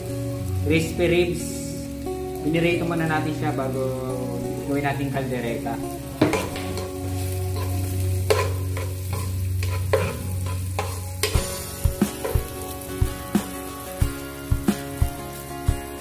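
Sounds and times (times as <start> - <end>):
garlic and onion sizzling: 0.0 - 16.0
metal spoon stirring and scraping: 6.2 - 11.4.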